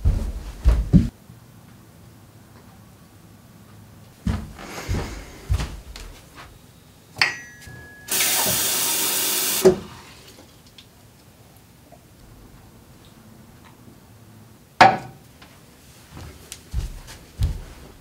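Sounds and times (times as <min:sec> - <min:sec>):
high ringing tone: 0:07.2 - 0:09.6
tap water pouring into cup: 0:08.1 - 0:10.4.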